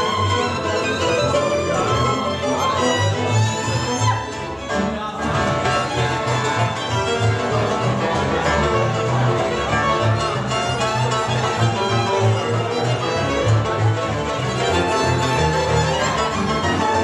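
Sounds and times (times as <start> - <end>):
double bass beat: 0.0 - 17.0
fiddles playing melody: 0.0 - 17.0.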